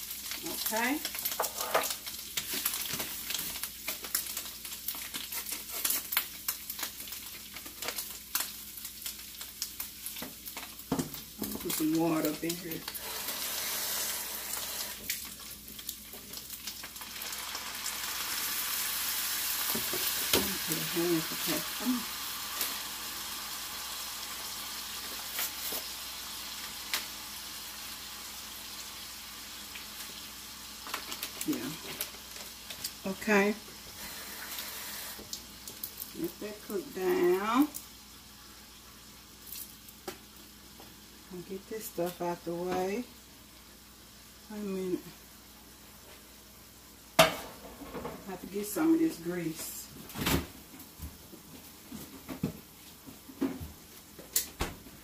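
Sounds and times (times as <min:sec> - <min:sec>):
meat sizzling in a skillet: 0:00.0 - 0:49.9
utensil scraping a pan: 0:01.4 - 0:01.9.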